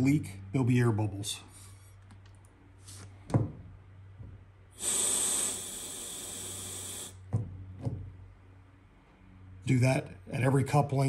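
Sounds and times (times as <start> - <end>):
compressed air hiss: 4.8 - 7.3.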